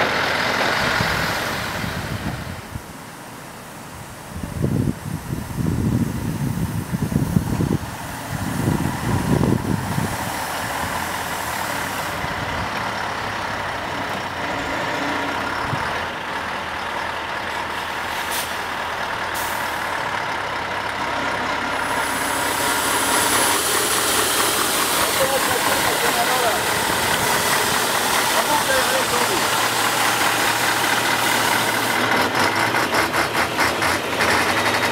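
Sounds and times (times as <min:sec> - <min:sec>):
truck diesel engine under load: 0:00.0 - 0:34.9.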